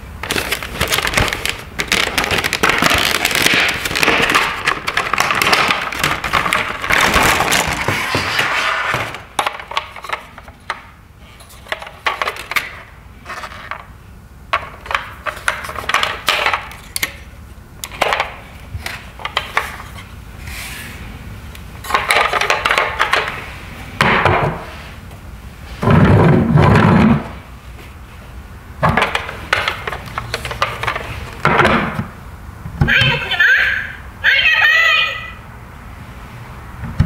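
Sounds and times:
plastic toy clattering: 0.2 - 8.2, 21.9 - 23.4, 28.9 - 31.5.

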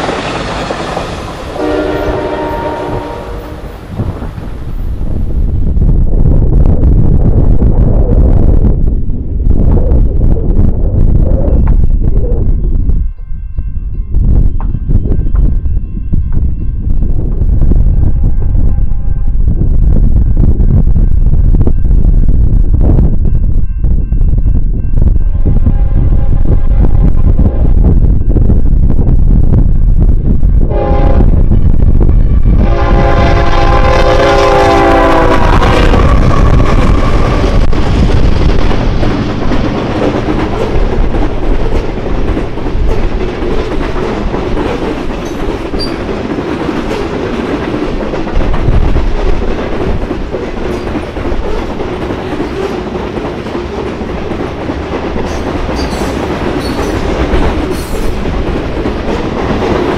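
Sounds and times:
train air horn blasts: 1.5 - 3.8, 25.3 - 27.4, 30.7 - 31.4, 32.6 - 37.6
freight cars clattering on rails: 36.4 - 59.9.

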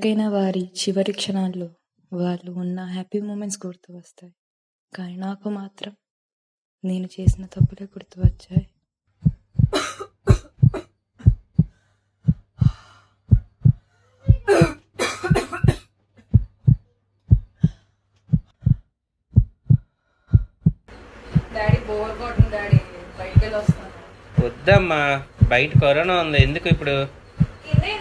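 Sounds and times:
heartbeat thumps: 7.2 - 28.0
girl coughing: 9.7 - 10.9, 14.2 - 15.9.

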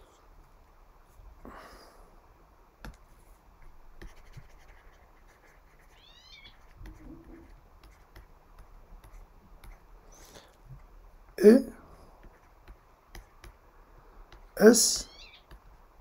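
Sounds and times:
stylus scratching on tablet: 4.0 - 10.0, 12.2 - 13.6.

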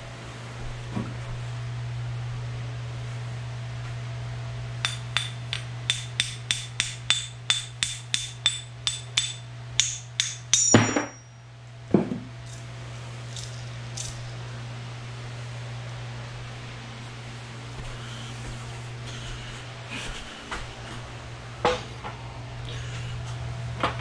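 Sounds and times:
steady low hum: 0.0 - 24.0
hammer striking metal: 4.8 - 11.4.

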